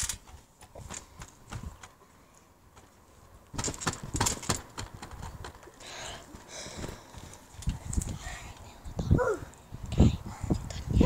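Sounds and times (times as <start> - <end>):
feet and hands thudding on trampoline: 0.0 - 2.0, 2.7 - 7.3.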